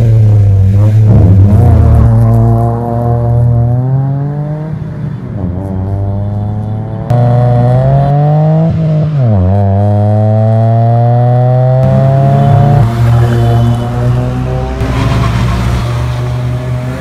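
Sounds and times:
car exhaust accelerating hard: 5.5 - 17.0.

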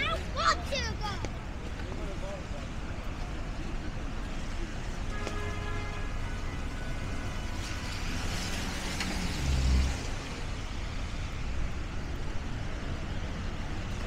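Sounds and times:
traffic engine noise: 0.0 - 14.0
tyres hissing on wet road: 4.2 - 14.0.

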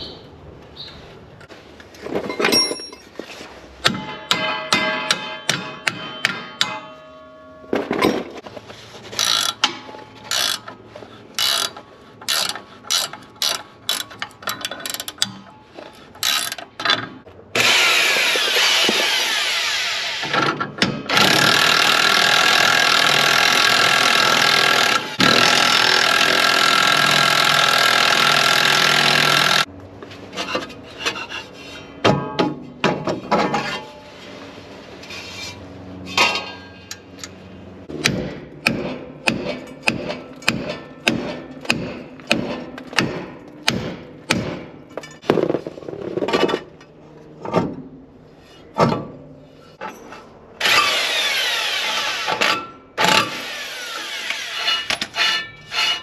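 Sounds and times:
ratchet wrench clicking: 10.3 - 10.7, 11.4 - 15.3.

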